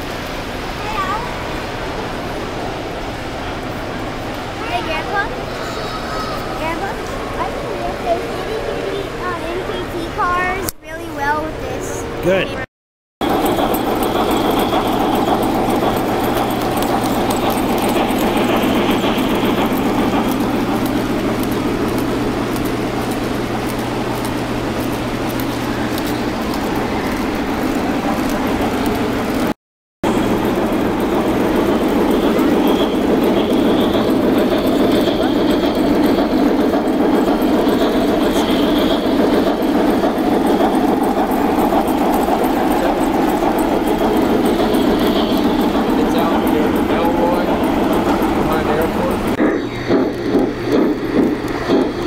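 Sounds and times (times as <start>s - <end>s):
model train wheels rumbling: 13.2s - 52.0s.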